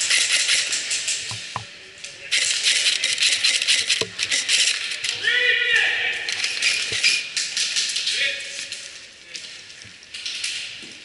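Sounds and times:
airsoft rifles firing: 0.0s - 1.7s, 2.3s - 5.1s.

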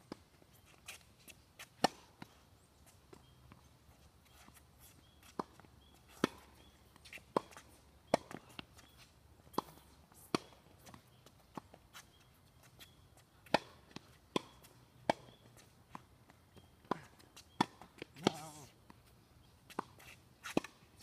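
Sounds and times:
tennis ball bouncing on hard court: 9.5s - 11.6s, 12.8s - 16.0s, 16.8s - 18.5s
tennis ball hit with racket: 13.4s - 15.4s, 16.9s - 18.6s.

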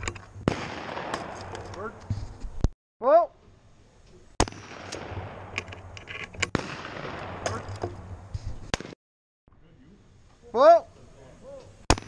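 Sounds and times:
shotgun firing: 0.4s - 2.0s, 4.4s - 8.0s, 8.7s - 9.0s.

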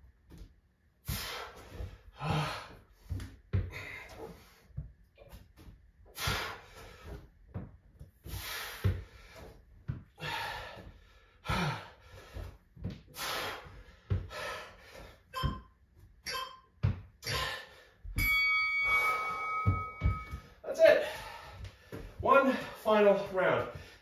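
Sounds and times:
heavy breathing: 1.0s - 4.8s, 6.1s - 7.3s, 8.2s - 15.3s, 17.2s - 18.1s, 18.8s - 23.1s, 23.7s - 24.0s
thuds on rubber exercise mat: 1.1s - 15.7s, 16.8s - 18.4s, 19.1s - 20.6s
electronic timer tone: 15.4s - 16.7s, 18.2s - 20.4s.

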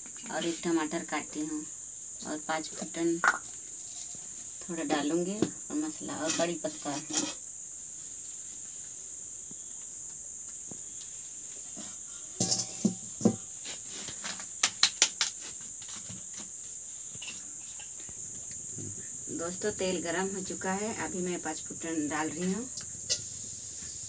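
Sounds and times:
crickets chirring: 0.0s - 24.0s
metallic knocks and clatter: 12.4s - 13.5s.

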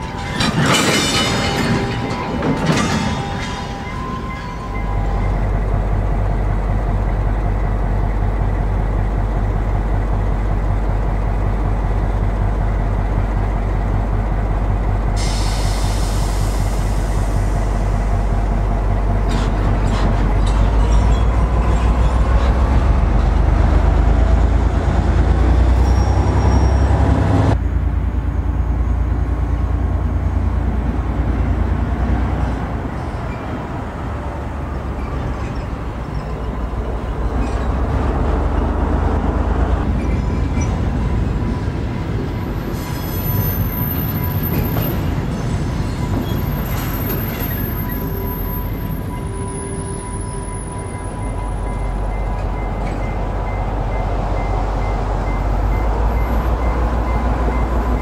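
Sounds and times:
metallic clanks: 0.0s - 5.4s
diesel locomotive engine drone: 0.0s - 58.0s
hiss: 15.2s - 18.0s.

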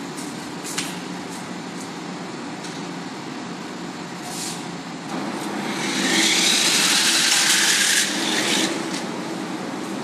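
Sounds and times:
rc car motor and tyres whirring: 5.6s - 8.8s.

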